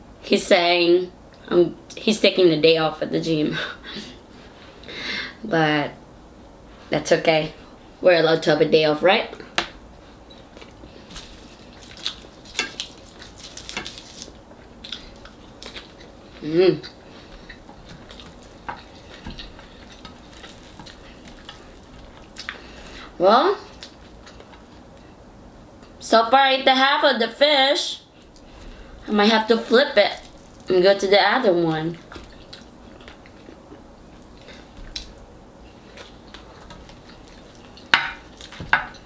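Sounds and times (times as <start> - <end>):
eating by hand: 10.3 - 23.0, 23.7 - 25.1, 30.0 - 30.7, 32.0 - 39.0
fried fish skin crackling: 10.6 - 16.4, 17.1 - 23.1, 30.0 - 31.0, 31.9 - 35.2, 35.8 - 39.0.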